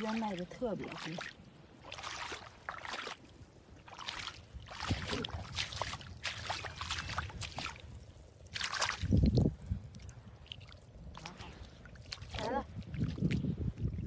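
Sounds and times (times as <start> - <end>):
shallow seawater splashing over sand: 0.0 - 9.2.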